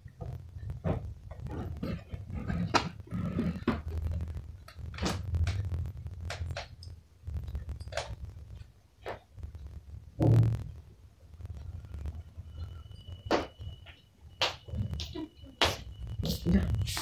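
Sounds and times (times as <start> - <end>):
low rumble: 0.2 - 8.7, 9.3 - 13.8.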